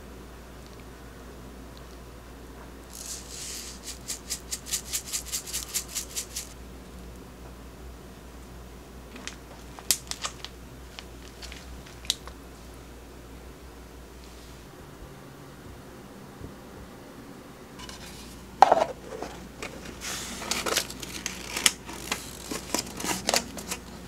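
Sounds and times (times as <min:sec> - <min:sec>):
seeds rasping from dispenser: 0:02.9 - 0:06.6, 0:17.8 - 0:24.0.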